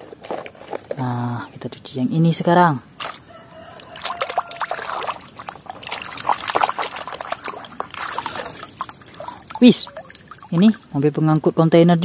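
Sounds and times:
water splashing in a basin: 0:03.0 - 0:11.0.

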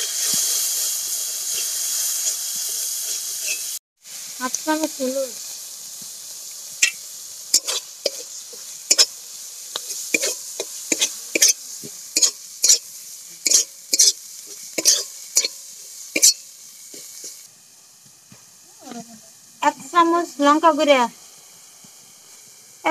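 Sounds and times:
paste sizzling in hot oil: 0:00.0 - 0:22.9
spatula scraping metal pan: 0:03.1 - 0:03.8, 0:06.8 - 0:09.1, 0:09.8 - 0:11.6, 0:13.4 - 0:14.2, 0:14.8 - 0:16.4.

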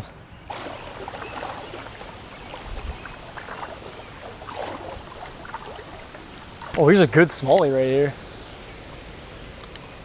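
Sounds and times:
water splashing around legs: 0:00.4 - 0:06.9.

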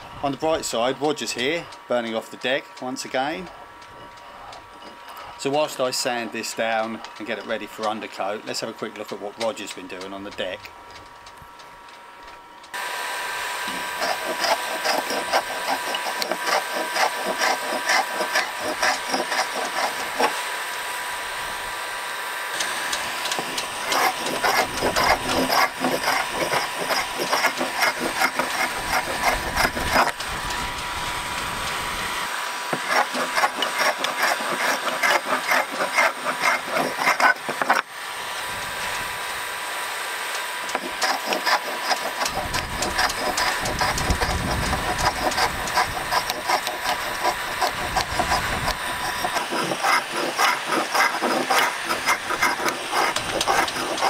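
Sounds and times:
heat gun blowing: 0:12.7 - 0:54.0
scraper rasping on wood: 0:13.6 - 0:20.4, 0:23.3 - 0:30.6, 0:32.7 - 0:37.8, 0:40.7 - 0:54.0.

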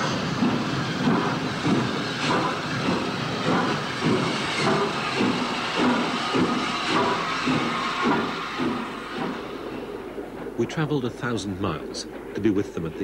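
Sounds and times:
steam hissing: 0:00.0 - 0:13.0
steam locomotive exhaust chuffs: 0:00.0 - 0:13.0.

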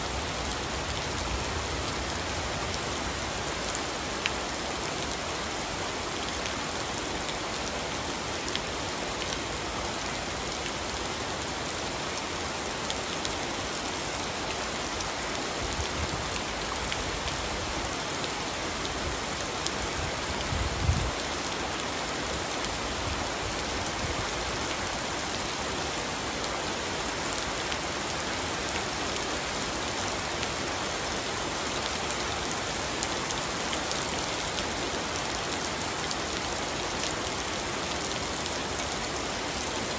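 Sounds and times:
rain on roof tiles and pool: 0:00.0 - 0:39.9.

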